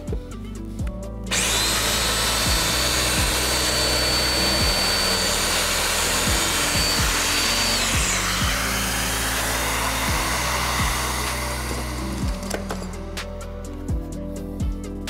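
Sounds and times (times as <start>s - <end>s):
background music: 0.0s - 15.0s
dust extractor air rushing: 1.3s - 12.6s
joiner high whine: 1.3s - 13.2s.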